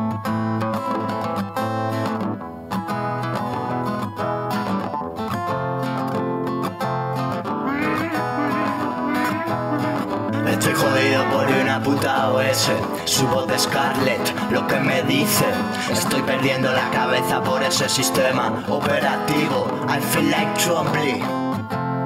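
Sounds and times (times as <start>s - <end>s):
plucked guitar: 0.0s - 22.0s
bass line: 7.6s - 12.7s.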